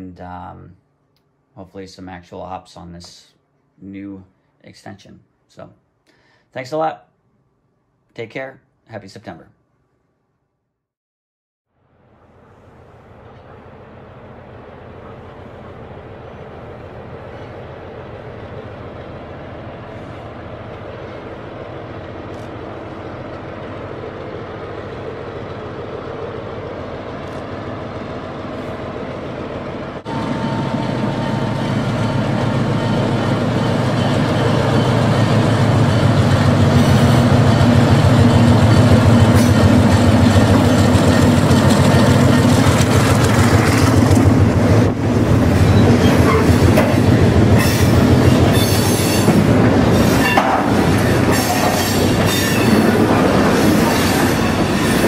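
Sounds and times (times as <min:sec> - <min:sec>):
model train wheels rumbling and clicking: 0:37.6 - 0:44.4.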